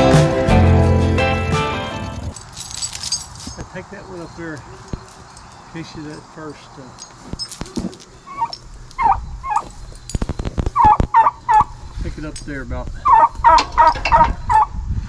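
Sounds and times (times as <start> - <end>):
fowl harsh calls: 13.0 - 14.7.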